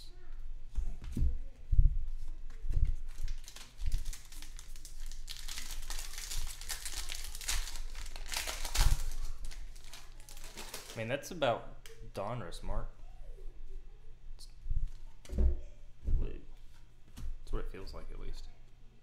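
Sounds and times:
plastic wrapper crinkling and tearing: 0:02.9 - 0:11.0.

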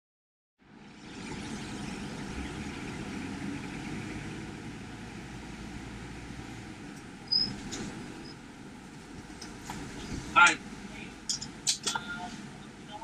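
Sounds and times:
motorhome engine and cab noise: 0:01.2 - 0:13.0
sharp high-pitched chirp: 0:07.3 - 0:07.6.

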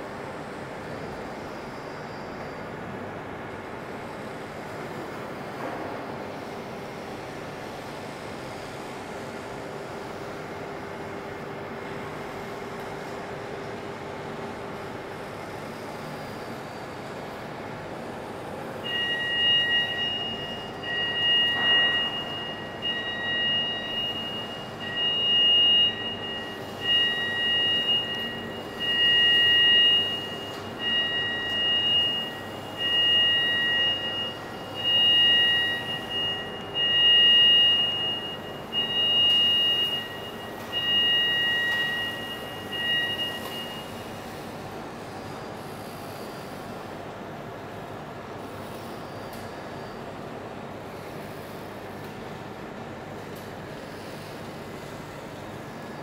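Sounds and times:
mechanical hum: 0:00.0 - 0:56.0
two-tone warning beep: 0:18.8 - 0:44.6.

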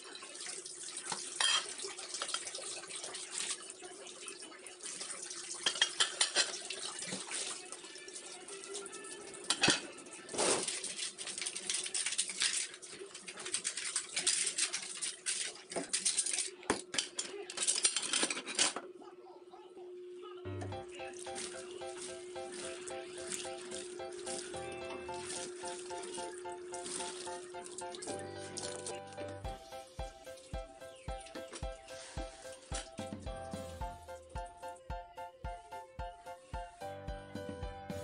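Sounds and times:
water splashing: 0:00.0 - 0:08.6, 0:20.9 - 0:33.2
dishes clattering and clinking: 0:01.1 - 0:02.5, 0:05.6 - 0:07.3, 0:09.5 - 0:10.7, 0:13.4 - 0:18.8.

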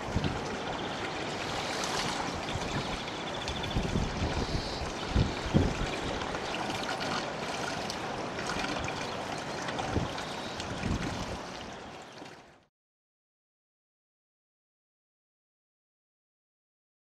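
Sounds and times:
wind buffeting microphone: 0:00.0 - 0:06.7, 0:09.8 - 0:11.6
outdoor noise: 0:00.0 - 0:12.7.

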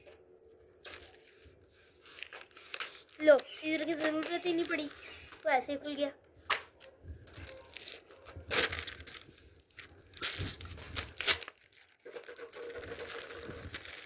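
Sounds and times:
plastic bottle crinkling: 0:00.6 - 0:14.0
sharp plastic cracks: 0:02.2 - 0:05.6, 0:06.2 - 0:14.0.

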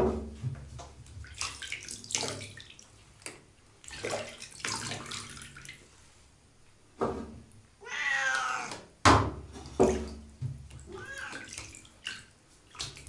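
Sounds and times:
water splashing in bathtub: 0:00.0 - 0:06.0, 0:09.4 - 0:13.0.

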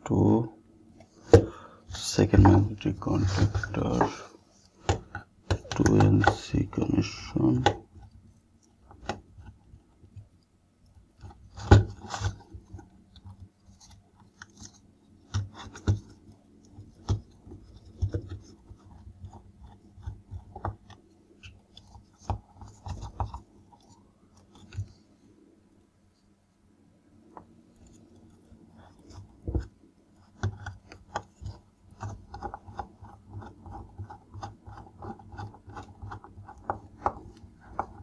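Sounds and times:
wires being handled: 0:27.6 - 0:38.0.

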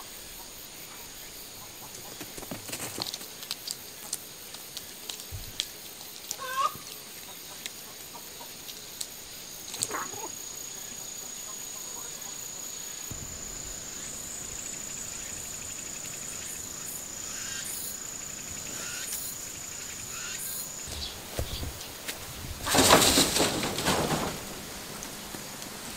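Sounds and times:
light ticks and rustles: 0:01.8 - 0:10.0
fowl clucking: 0:06.4 - 0:06.9
high-pitched insect buzz: 0:08.8 - 0:22.3.

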